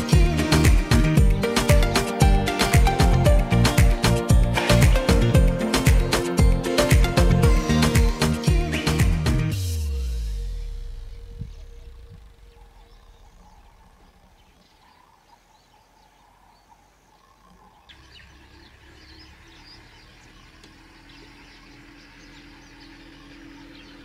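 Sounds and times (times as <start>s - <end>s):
low steady drone: 0.0s - 24.0s
small birds chirping: 10.2s - 24.0s
insects: 11.1s - 24.0s.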